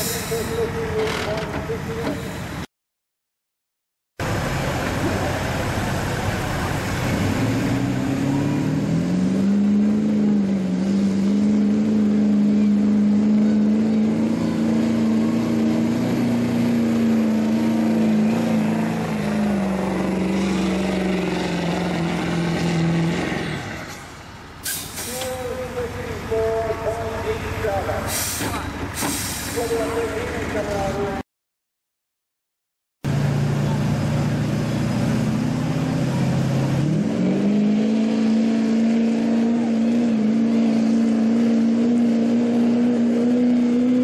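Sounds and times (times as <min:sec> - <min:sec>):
diesel engine under full load: 0:00.0 - 0:02.7, 0:04.2 - 0:31.2, 0:33.0 - 0:44.0
short sharp hiss: 0:24.6 - 0:25.4.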